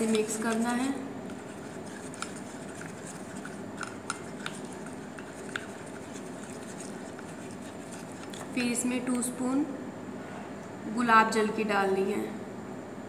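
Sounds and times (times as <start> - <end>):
spoon stirring paste in bowl: 0.0 - 9.3.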